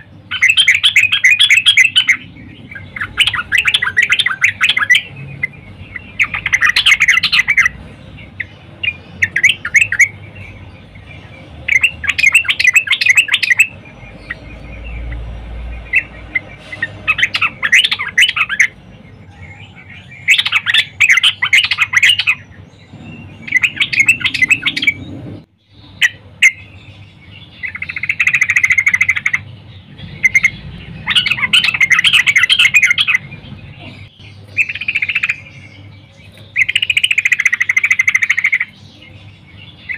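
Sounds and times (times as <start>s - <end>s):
bird chattering song: 0.0s - 39.9s.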